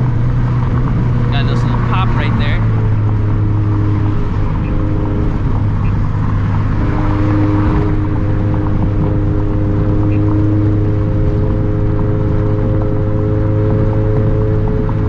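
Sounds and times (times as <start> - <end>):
higher hum: 0.0 - 10.6
car engine droning: 0.0 - 15.0.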